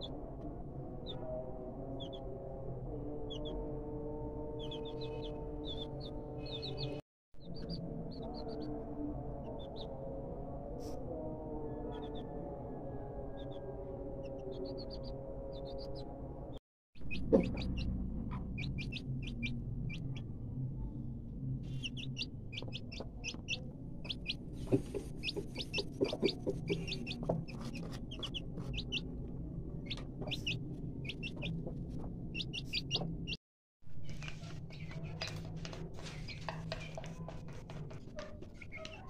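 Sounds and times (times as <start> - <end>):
chicks peeping: 3.2 - 3.6, 4.4 - 8.7, 9.4 - 10.0, 14.2 - 16.1, 17.0 - 20.2, 21.7 - 29.1, 29.8 - 33.4, 34.0 - 37.1, 38.4 - 39.0.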